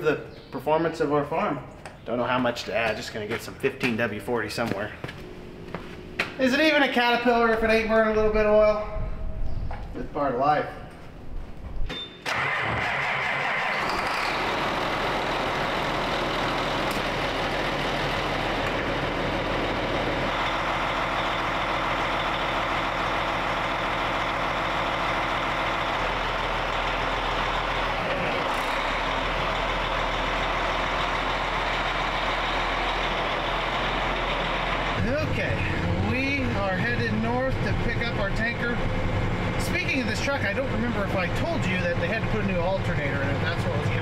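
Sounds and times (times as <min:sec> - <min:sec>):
diesel truck engine idling: 0:13.5 - 0:44.0.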